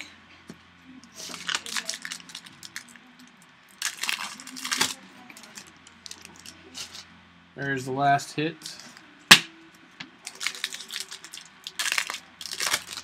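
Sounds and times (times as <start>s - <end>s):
foil wrapper crinkling: 1.2s - 3.0s, 3.7s - 6.6s, 10.2s - 13.0s.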